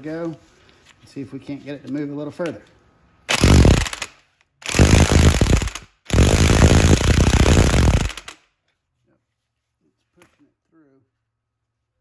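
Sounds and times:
impact wrench hammering: 3.3 - 8.3.

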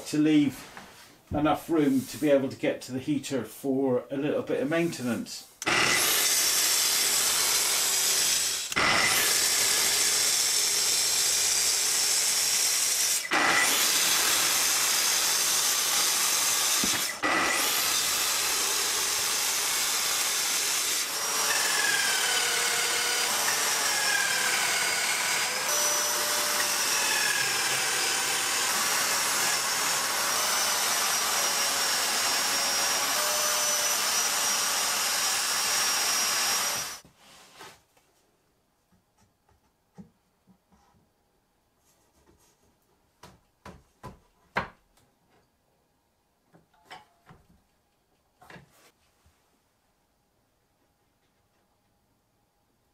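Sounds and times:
track saw cutting wood: 5.6 - 37.0.

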